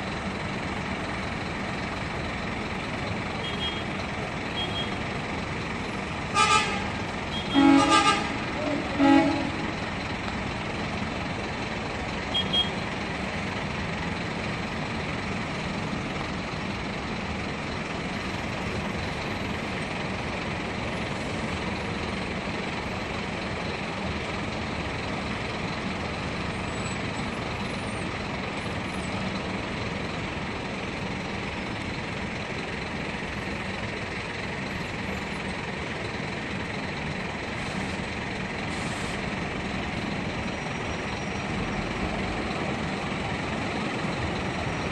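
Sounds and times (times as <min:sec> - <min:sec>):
bus diesel engines running: 0:00.0 - 0:44.9.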